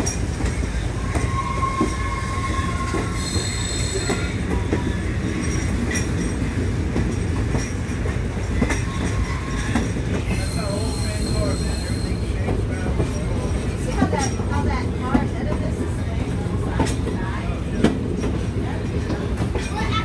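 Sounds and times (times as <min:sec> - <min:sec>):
train wheels rumbling: 0:00.0 - 0:20.0
high wheel squeals: 0:00.1 - 0:06.0, 0:08.6 - 0:13.4.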